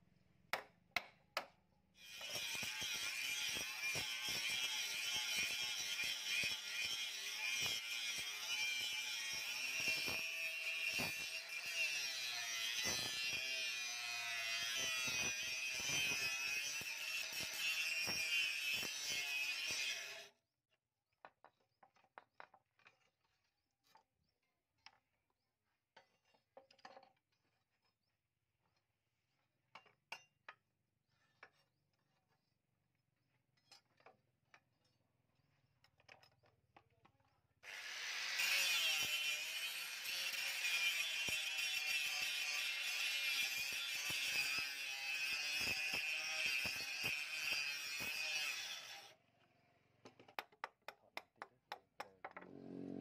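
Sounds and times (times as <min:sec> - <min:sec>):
angle grinder grinding steel: 0:02.0 - 0:20.3, 0:37.6 - 0:49.2.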